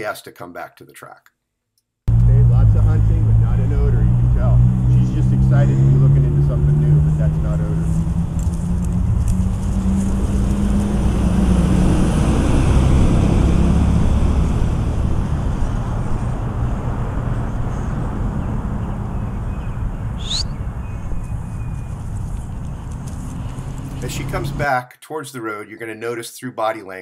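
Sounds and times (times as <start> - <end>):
truck engine running: 2.1 - 20.8
road noise: 2.1 - 24.7.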